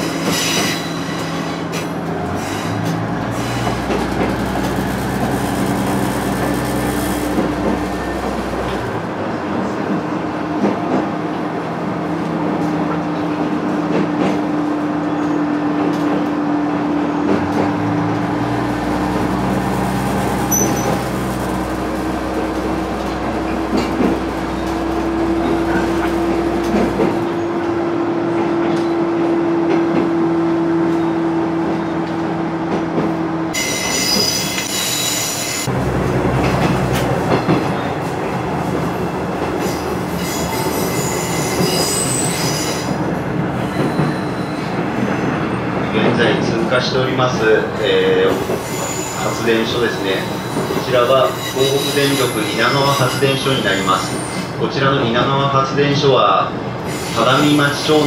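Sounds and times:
diesel railcar engine drone: 0.0 - 58.0.

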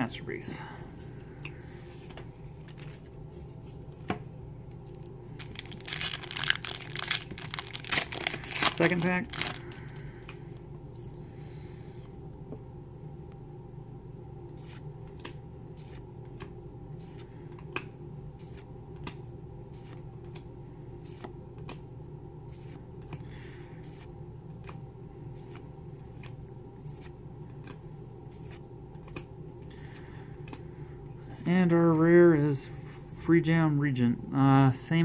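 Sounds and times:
steady low hum: 0.0 - 35.0
cards being flicked: 18.5 - 19.2, 27.5 - 27.8, 28.4 - 29.3.

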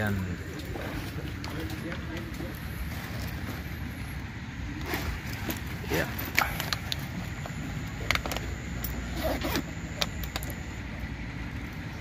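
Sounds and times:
steady low rumble: 0.0 - 12.0
bag clicks and rustles: 4.8 - 10.7.

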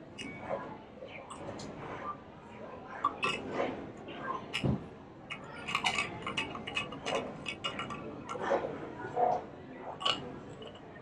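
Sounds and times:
metal cup clicking and tapping: 3.0 - 3.4, 5.3 - 8.4, 10.0 - 10.8.

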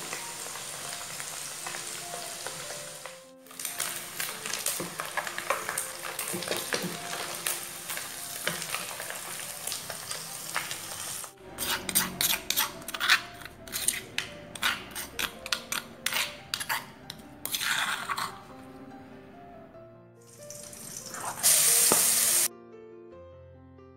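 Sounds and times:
hot oil sizzling in a wok: 0.0 - 12.6, 20.3 - 22.5
pestle grinding in stone mortar: 11.6 - 18.5.

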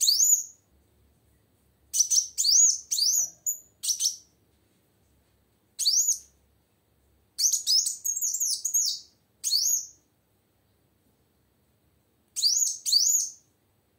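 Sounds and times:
bird chirping: 0.0 - 0.6, 1.9 - 4.4, 5.8 - 6.4, 7.4 - 10.1, 12.4 - 13.5.

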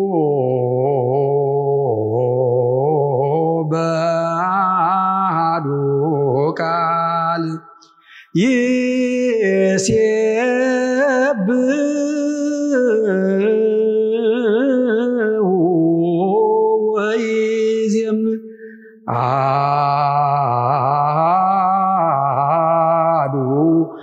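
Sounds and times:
man chanting solo: 19.1 - 24.0.

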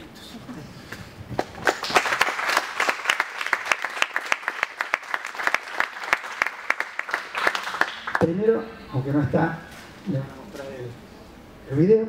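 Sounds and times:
people clapping: 1.4 - 8.3.

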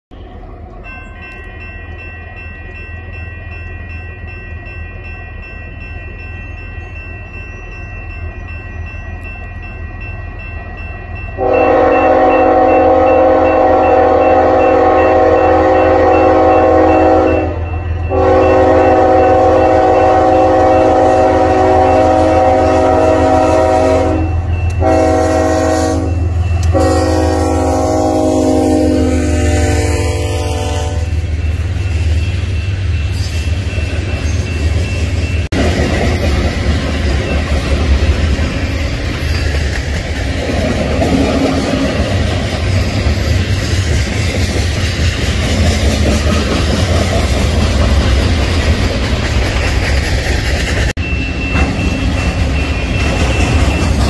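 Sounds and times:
diesel locomotive rumbling: 0.1 - 54.0
train air horn blasts: 11.4 - 31.2.

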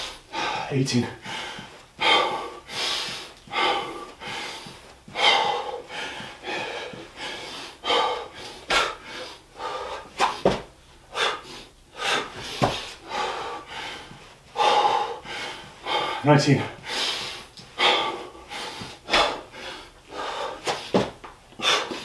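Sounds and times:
man breathing heavily: 0.0 - 22.0
hands and feet thudding on floor: 10.2 - 10.8, 12.3 - 13.0, 20.6 - 22.0.

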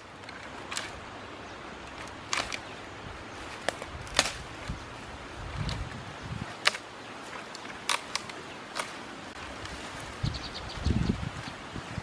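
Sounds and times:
dry branches snapping: 0.0 - 1.1, 1.8 - 10.2
rustling of twigs and grass: 0.0 - 12.0.

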